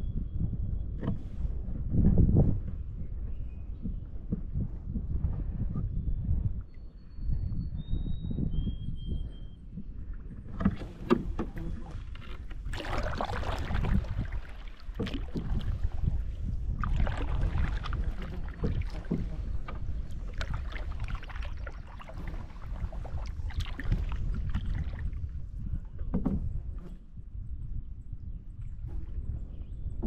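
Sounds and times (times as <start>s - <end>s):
wind on microphone: 0.0s - 30.0s
paddle swishing through water: 9.8s - 27.0s.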